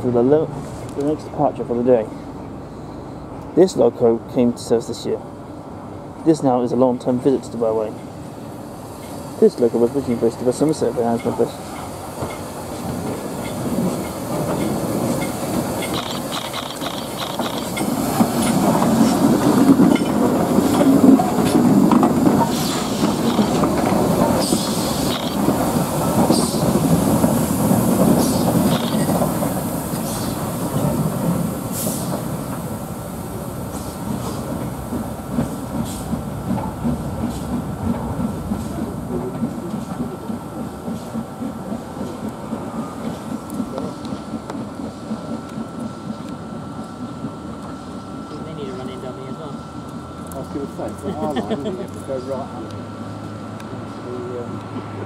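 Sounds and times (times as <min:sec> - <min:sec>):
steam hissing: 0:08.3 - 0:49.6
locomotive wheels clanking: 0:09.8 - 0:32.7, 0:33.7 - 0:52.1.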